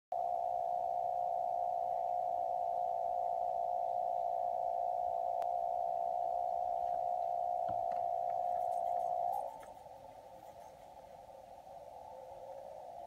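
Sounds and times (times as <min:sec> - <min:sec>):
radio receiver hiss: 0:00.2 - 0:13.0.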